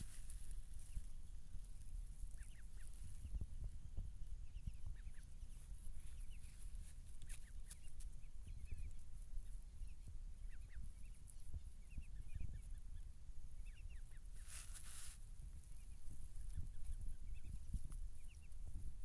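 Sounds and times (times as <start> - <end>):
ducklings peeping: 0.0 - 19.0.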